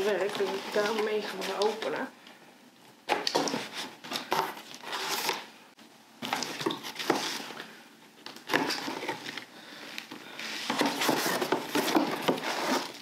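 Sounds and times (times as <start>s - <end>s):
paper packing rustling: 0.0s - 1.9s.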